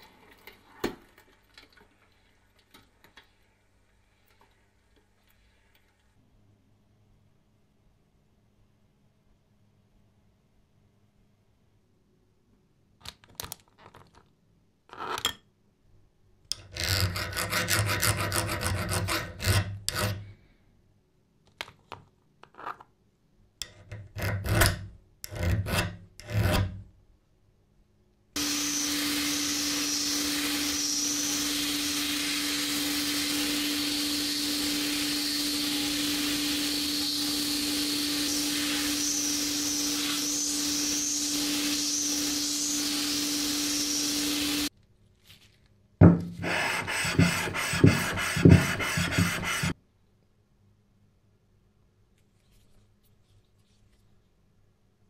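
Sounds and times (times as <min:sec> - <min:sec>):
file rasping on steel: 0:16.6 - 0:20.3, 0:23.6 - 0:26.8, 0:46.4 - 0:49.8
sandblaster hissing: 0:28.4 - 0:44.7
steady hum: 0:28.4 - 0:44.7.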